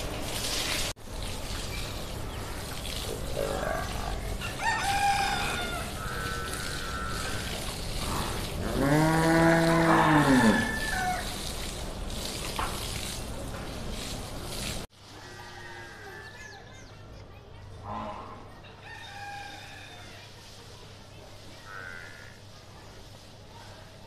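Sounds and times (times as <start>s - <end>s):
hose water spraying and splashing: 0.0s - 15.2s, 20.0s - 24.0s
higher animal calls: 3.3s - 7.8s
buffalo mooing: 5.4s - 11.0s.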